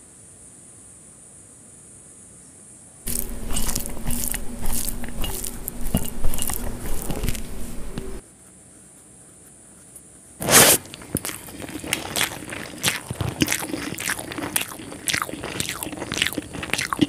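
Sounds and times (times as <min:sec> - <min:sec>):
faint steady hiss: 0:00.0 - 0:13.4
fingers squishing wet rice: 0:03.1 - 0:17.0.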